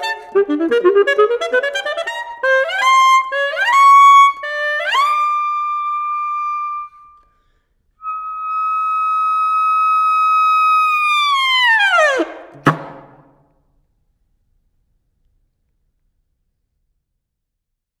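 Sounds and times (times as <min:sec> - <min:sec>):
solo saxophone playing: 0:00.0 - 0:07.2, 0:08.0 - 0:11.0.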